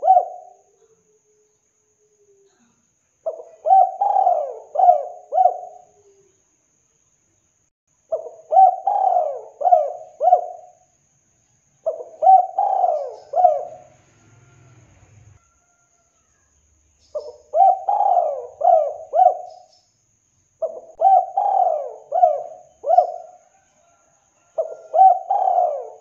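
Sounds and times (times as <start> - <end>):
dove cooing: 0.0 - 1.2, 3.2 - 6.3, 8.1 - 10.8, 11.8 - 14.0, 17.1 - 19.7, 20.6 - 26.0.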